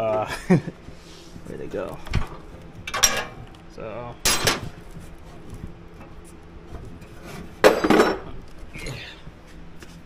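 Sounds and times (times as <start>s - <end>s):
metal hardware and wrench clinking: 2.9s - 3.4s.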